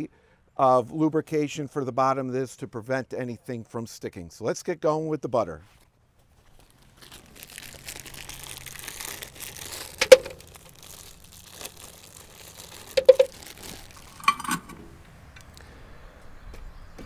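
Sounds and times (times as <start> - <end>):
plastic bag crinkling: 6.3 - 14.7
sharp clicks or taps: 13.0 - 13.3.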